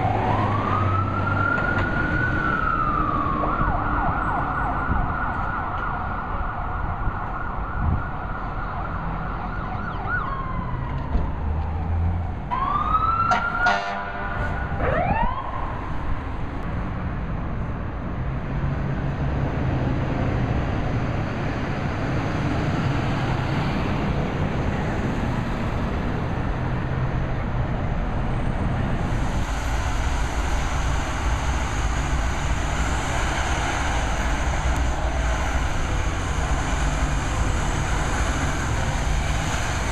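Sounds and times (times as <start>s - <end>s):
emergency vehicle siren: 0.0s - 17.0s, 19.8s - 39.9s
street traffic noise: 0.0s - 39.9s
steady engine rumble: 15.8s - 39.9s.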